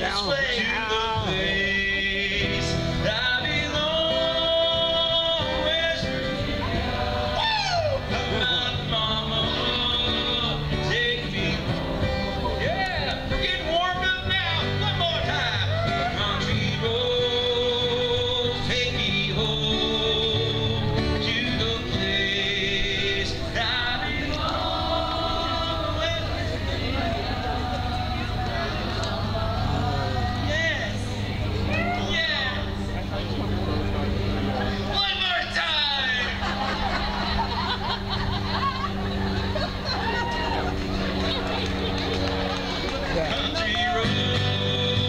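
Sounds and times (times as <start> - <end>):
man singing: 0.0 - 31.2, 43.3 - 45.0
country music guitars: 0.0 - 45.0.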